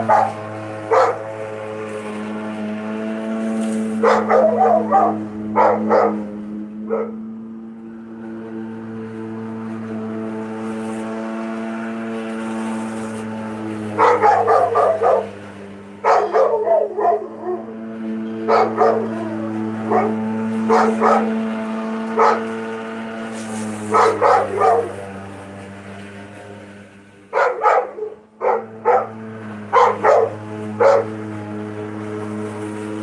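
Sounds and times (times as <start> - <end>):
dog barking: 0.0 - 1.2, 4.0 - 6.3, 6.9 - 7.2, 14.0 - 15.4, 16.0 - 17.7, 18.5 - 19.3, 19.9 - 21.3, 22.2 - 22.5, 23.9 - 25.0, 27.3 - 31.1
electric lawn mower humming: 0.0 - 33.0.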